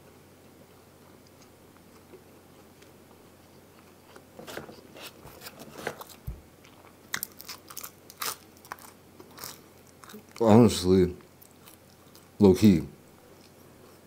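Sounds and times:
person chewing pizza: 0.6 - 10.6, 11.2 - 12.4.

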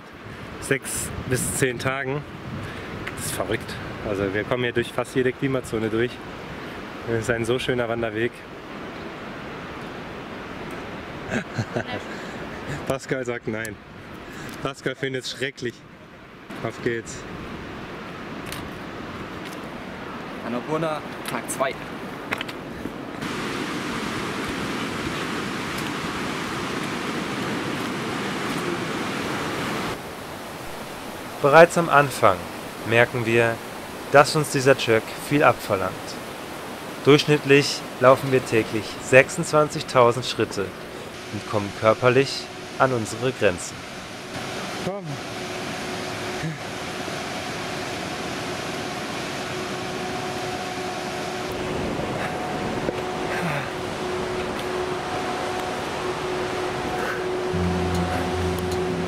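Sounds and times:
river rushing over rocks: 23.1 - 59.0
faint steady hum: 40.6 - 59.0.

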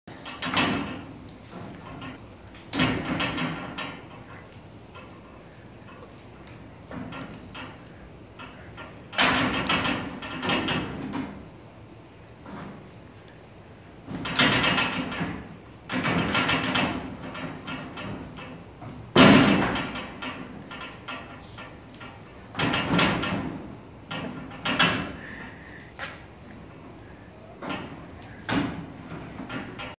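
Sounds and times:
goats butting metal fence: 0.1 - 11.5, 14.0 - 30.0.

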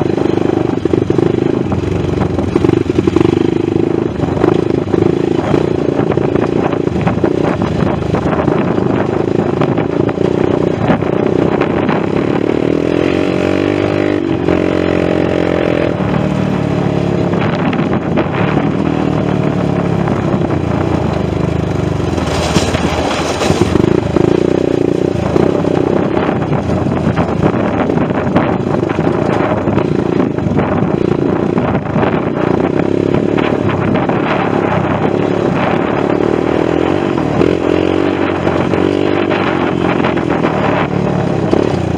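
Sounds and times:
atv engine running: 0.0 - 41.9
machine rattling over rough ground: 21.4 - 35.1.

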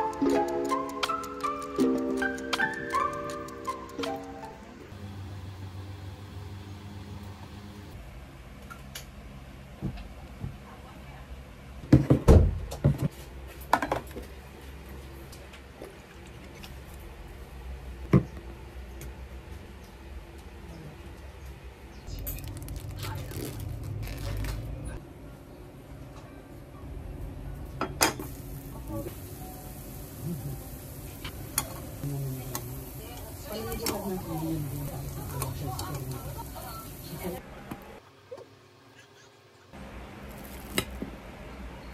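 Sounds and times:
hash browns sizzling in oil: 28.2 - 37.4.

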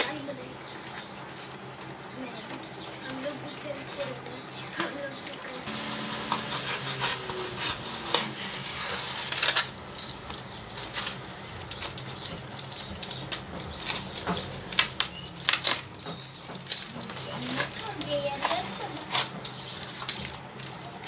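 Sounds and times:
cardboard tearing and crinkling: 5.7 - 21.0.

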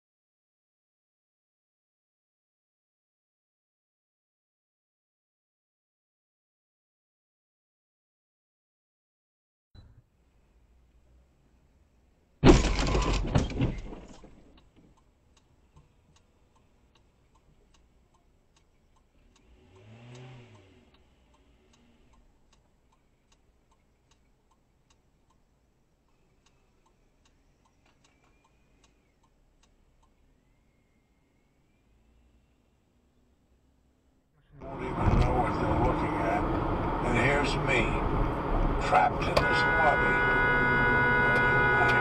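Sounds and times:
car collision crunching impact: 12.4 - 14.6
faint regular ticking: 14.2 - 34.2
low rising and falling tone: 34.5 - 38.9.

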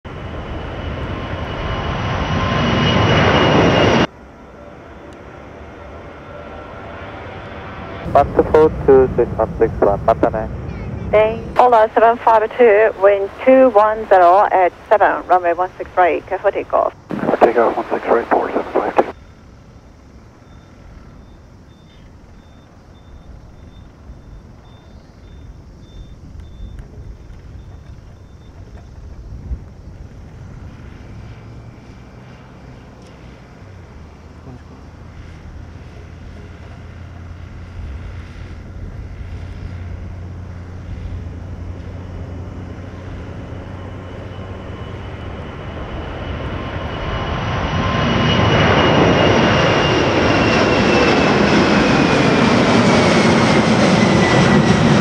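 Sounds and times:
airliner engine noise climbing: 0.0 - 55.0
jet engines high whine: 0.0 - 55.0
faint high beep: 20.4 - 26.8.

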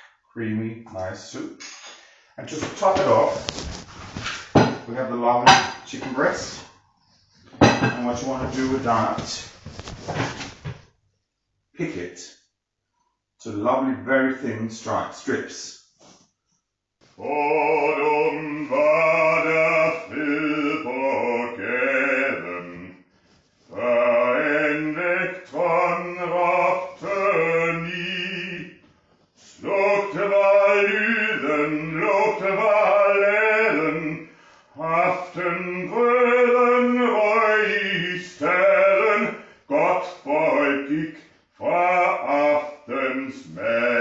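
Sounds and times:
man singing operatically: 2.4 - 3.6, 4.8 - 6.7, 8.0 - 9.6, 17.2 - 23.1, 23.7 - 28.8, 29.5 - 44.0.

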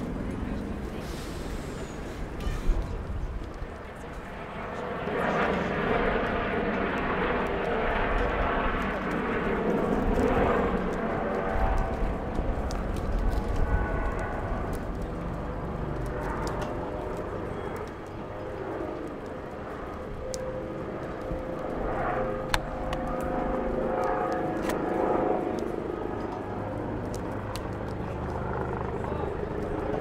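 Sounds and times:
helicopter rotor and turbine: 0.0 - 30.0
street noise: 0.0 - 30.0.

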